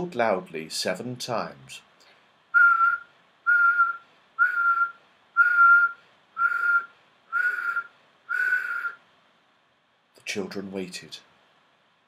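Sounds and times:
man whistling short notes: 0:02.6 - 0:09.0.

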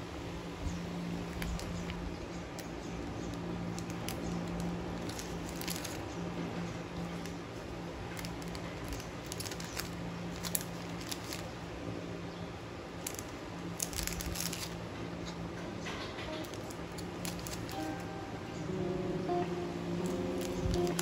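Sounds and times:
steady low hum: 0:00.0 - 0:21.0
plastic bag crinkling: 0:03.1 - 0:06.2, 0:08.0 - 0:11.6, 0:12.9 - 0:14.9, 0:16.4 - 0:18.1, 0:20.0 - 0:21.0.

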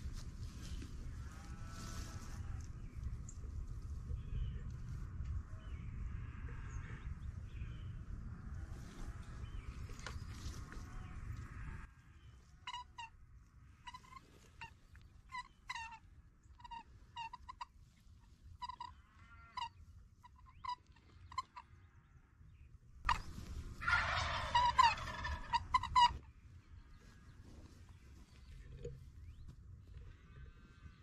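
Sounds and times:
turkey gobbling: 0:12.6 - 0:13.1, 0:13.8 - 0:16.0, 0:16.6 - 0:17.7, 0:18.6 - 0:18.9, 0:20.3 - 0:21.6, 0:23.1 - 0:26.2
turkey calls: 0:12.6 - 0:13.2, 0:13.8 - 0:17.8, 0:18.6 - 0:21.8, 0:23.1 - 0:26.4.

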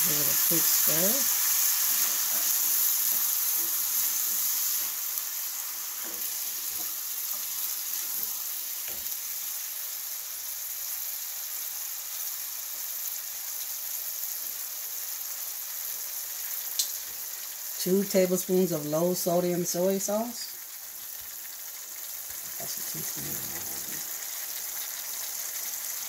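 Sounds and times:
meat sizzling in skillet: 0:00.0 - 0:26.0
wooden spatula stirring: 0:00.2 - 0:09.0.

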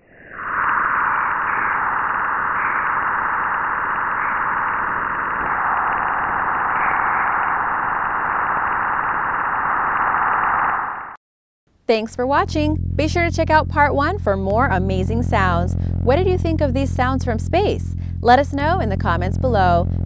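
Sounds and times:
steady even hiss: 0:00.0 - 0:10.7.

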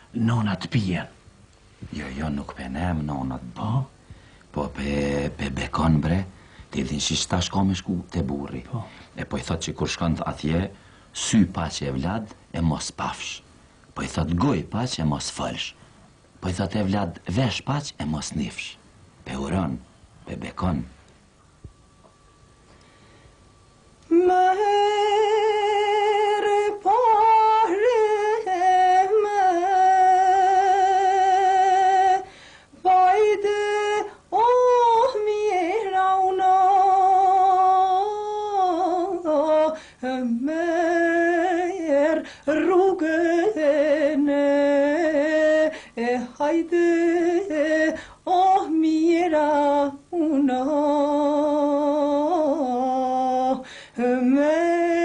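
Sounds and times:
woman singing slow song: 0:24.0 - 0:55.0.

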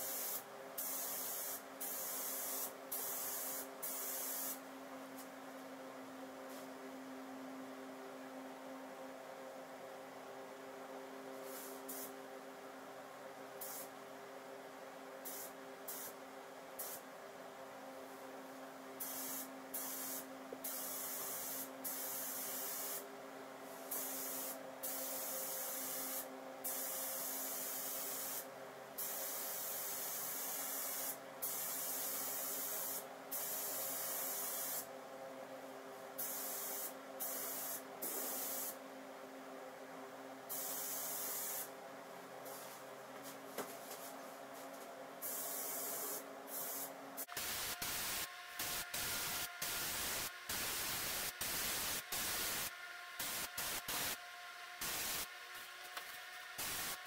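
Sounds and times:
spray gun hissing: 0:00.0 - 0:04.6, 0:11.4 - 0:12.1, 0:19.0 - 0:23.0, 0:23.9 - 0:28.4, 0:29.0 - 0:34.9, 0:36.2 - 0:38.8, 0:40.5 - 0:41.7, 0:45.2 - 0:54.2, 0:54.8 - 0:55.3, 0:56.6 - 0:57.0.

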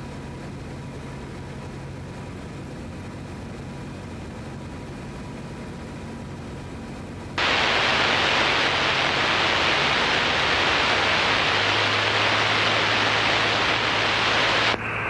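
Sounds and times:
radio call: 0:07.4 - 0:15.0
radio static hiss: 0:07.4 - 0:15.0.

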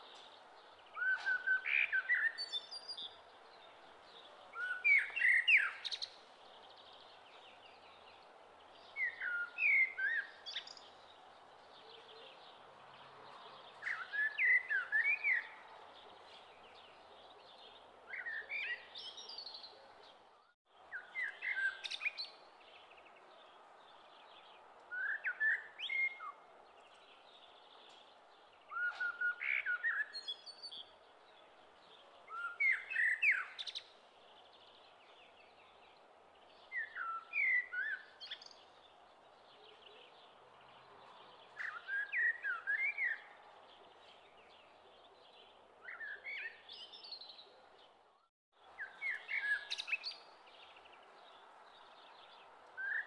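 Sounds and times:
songbird chirping: 0:00.0 - 0:53.0.

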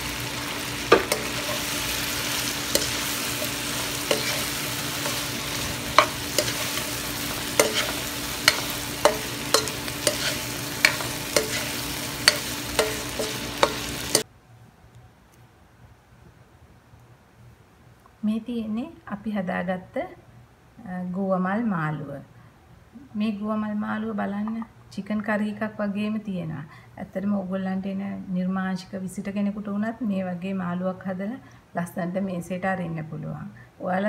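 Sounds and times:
food sizzling in oil: 0:00.0 - 0:14.3.

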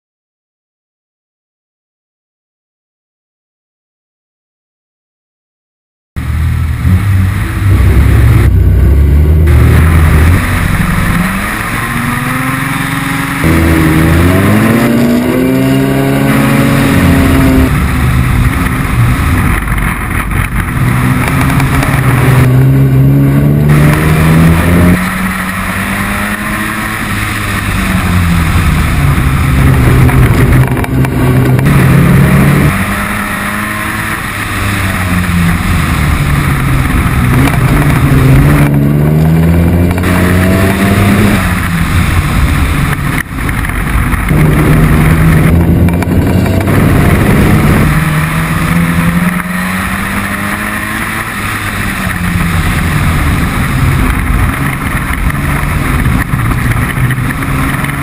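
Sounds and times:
truck engine accelerating: 0:06.2 - 0:58.0
rain spray and wind hiss: 0:15.7 - 0:22.9, 0:23.6 - 0:58.0.

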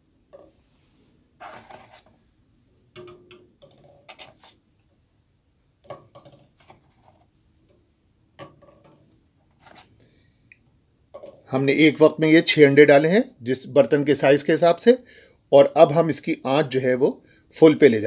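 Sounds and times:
eggs knocking in saucepan: 0:03.0 - 0:03.9, 0:05.8 - 0:06.6, 0:08.3 - 0:09.1.

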